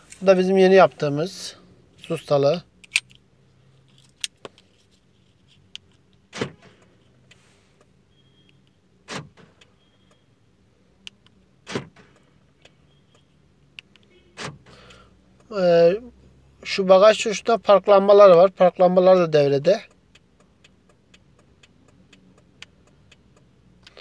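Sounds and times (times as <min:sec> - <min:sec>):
car door locks clunking: 0:06.3 - 0:06.9, 0:09.0 - 0:09.8, 0:11.6 - 0:12.2, 0:14.3 - 0:14.8.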